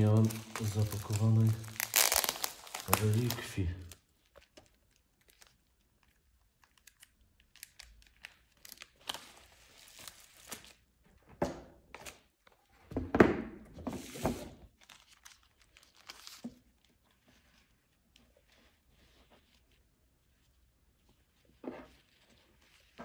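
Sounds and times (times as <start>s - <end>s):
packaging tearing and rustling: 0.0s - 10.8s, 14.8s - 16.4s.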